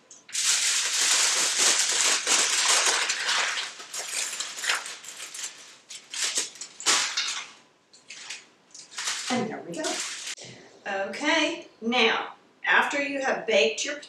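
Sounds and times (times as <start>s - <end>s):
aluminium foil crinkling: 0.1s - 10.4s.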